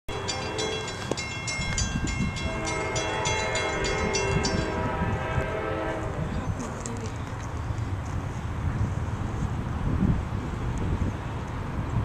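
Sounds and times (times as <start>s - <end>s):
locomotive horn chord: 0.1s - 1.2s, 2.3s - 6.3s
crossing bell ringing: 0.1s - 6.0s.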